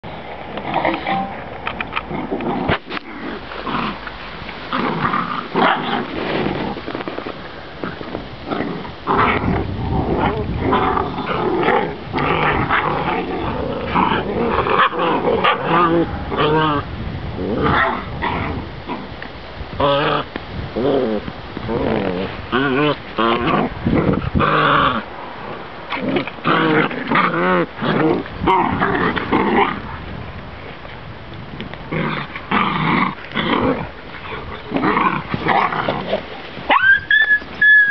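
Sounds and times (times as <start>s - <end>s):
puppies growling: 0.5s - 19.2s, 19.8s - 30.0s, 31.8s - 37.9s.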